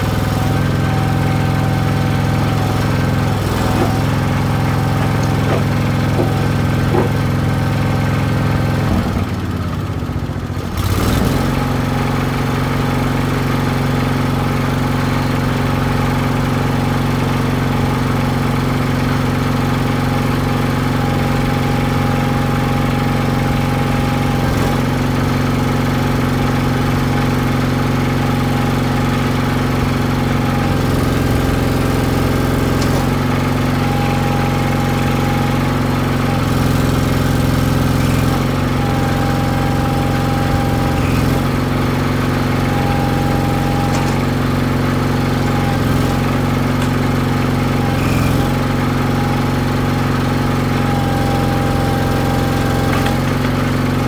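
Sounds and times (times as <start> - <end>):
hydraulics working: 0.0 - 11.6, 29.8 - 54.0
backhoe engine running: 0.0 - 54.0
thin whine: 42.5 - 44.4.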